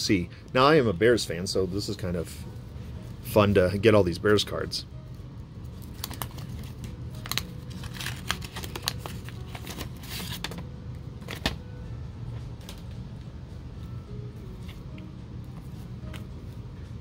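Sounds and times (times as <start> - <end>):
low steady hum: 0.0 - 17.0
wax paper wrapper crinkling: 5.6 - 11.6
cards shuffled: 5.8 - 11.6.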